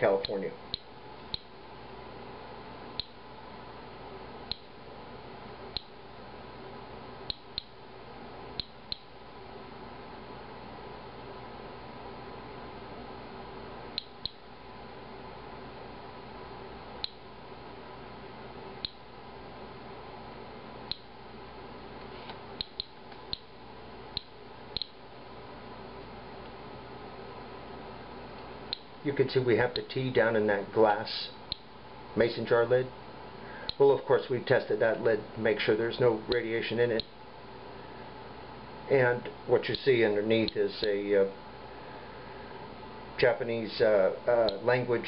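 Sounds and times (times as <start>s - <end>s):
faint room hum: 0.0s - 45.0s
faint steady hiss: 0.0s - 45.0s
geiger counter clicking: 0.2s - 1.5s, 3.0s - 3.2s, 4.5s - 4.8s, 5.7s - 6.0s, 7.3s - 7.8s, 8.6s - 9.1s, 14.0s - 14.4s, 17.0s - 17.2s, 18.8s - 19.0s, 20.9s - 21.1s, 22.6s - 23.5s, 24.1s - 25.0s, 31.5s - 31.7s.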